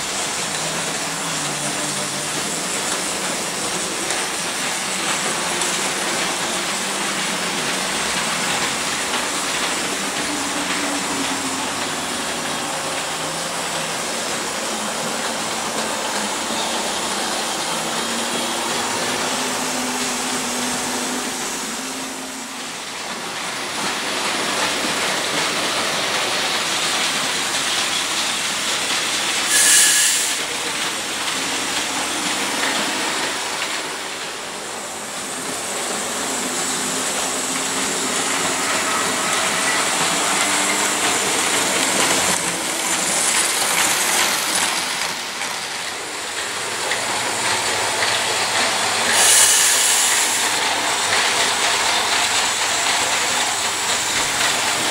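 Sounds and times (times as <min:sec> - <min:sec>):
model trains whirring on track: 0:00.0 - 0:54.9
short hissing rushes: 0:29.5 - 0:30.4, 0:49.1 - 0:50.5.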